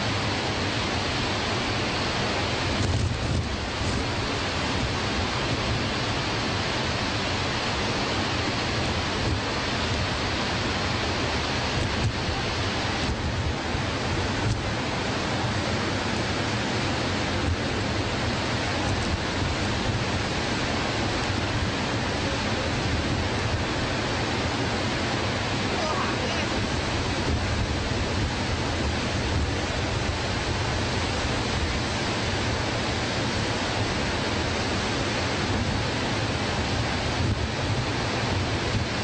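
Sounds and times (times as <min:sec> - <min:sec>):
waterfall rushing: 0:00.0 - 0:39.0.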